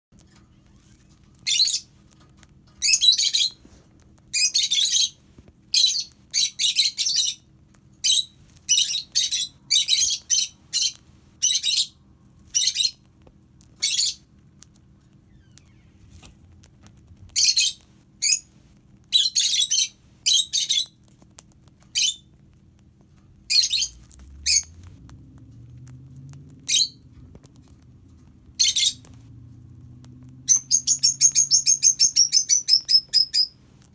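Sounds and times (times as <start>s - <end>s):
lovebird chirping shrilly: 1.4s - 1.9s, 2.8s - 3.6s, 4.3s - 7.4s, 8.0s - 13.0s, 13.8s - 14.2s, 17.4s - 18.5s, 19.1s - 21.0s, 23.5s - 24.7s, 26.7s - 27.0s, 28.6s - 29.0s, 30.5s - 33.6s.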